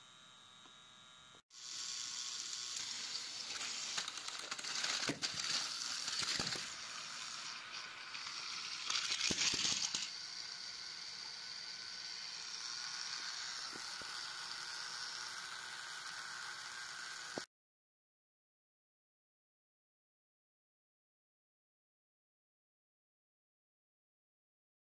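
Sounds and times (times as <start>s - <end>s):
toy motor whirring: 0.0s - 17.5s.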